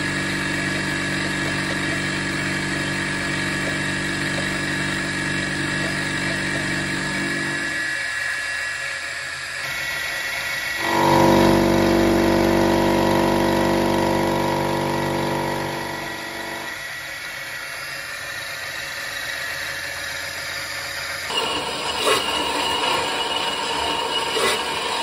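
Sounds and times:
milling machine cutting metal: 0.0s - 9.1s, 9.7s - 17.7s, 21.3s - 25.0s
loud pitched ringing: 10.8s - 16.8s, 21.3s - 25.0s.

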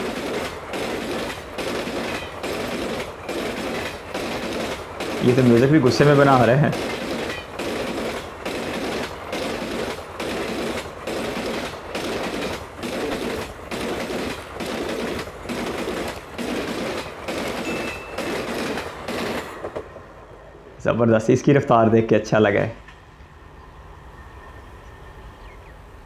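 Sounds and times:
train wheels clattering over track: 0.0s - 20.1s.

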